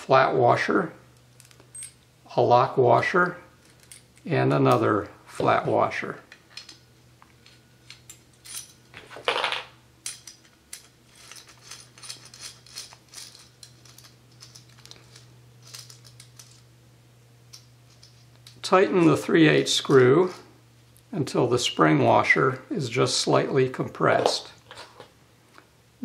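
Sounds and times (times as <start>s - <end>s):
faint steady hum: 0.0s - 26.0s
small metal parts clicking: 3.6s - 4.3s, 6.3s - 6.8s, 10.0s - 16.6s.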